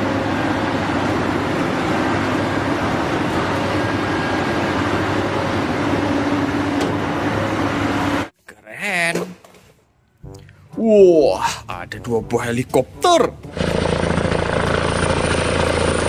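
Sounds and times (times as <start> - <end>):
excavator machine noise with low hum: 0.0 - 8.4, 13.4 - 16.0.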